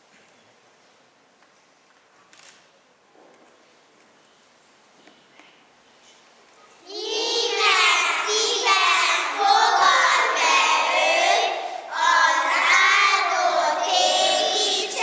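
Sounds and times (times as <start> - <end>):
children singing together: 6.8 - 15.0.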